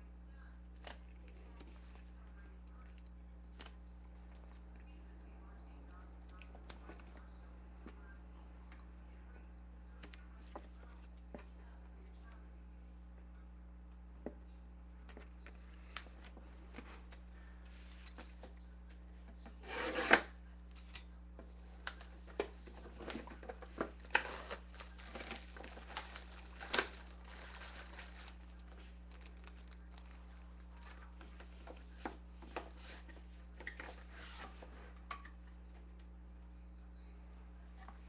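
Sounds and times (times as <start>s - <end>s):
plastic wrap crinkling: 22.9s - 31.6s
plastic wrap ripping: 24.0s - 31.1s.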